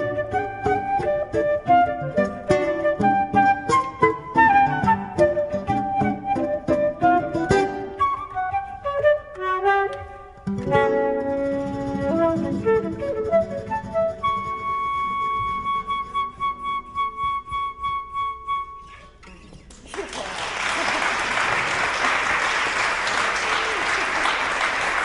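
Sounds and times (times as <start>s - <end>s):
plucked nylon-string guitar: 0.0s - 16.2s
flute long held note: 0.0s - 19.2s
audience applause: 19.7s - 25.0s.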